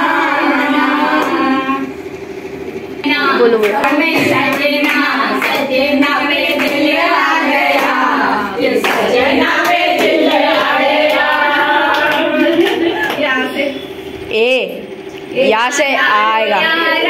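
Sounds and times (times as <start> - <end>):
women singing together: 0.0 - 2.0, 3.0 - 13.8, 15.4 - 17.0
hands clapping: 3.6 - 5.7, 7.7 - 8.0, 8.8 - 11.3, 11.9 - 13.3.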